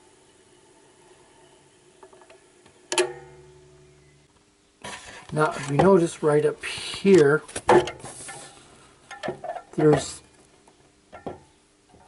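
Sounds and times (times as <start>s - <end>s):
turntable shut-off click: 2.9s - 3.4s
low hum: 3.0s - 4.4s.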